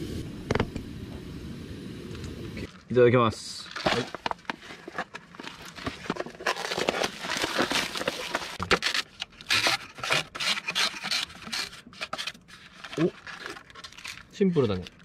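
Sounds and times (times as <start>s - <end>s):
plastic sachets crinkling: 2.7s - 15.0s
foil lid peeling: 3.7s - 15.0s.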